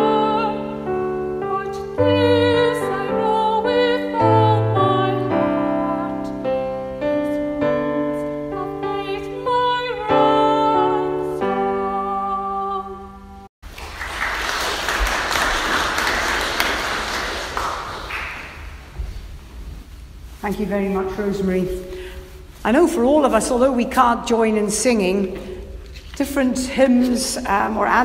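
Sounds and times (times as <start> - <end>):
solo voice singing a hymn: 0.0 - 6.5
piano chords: 0.0 - 13.5
recording hiss: 0.0 - 28.0.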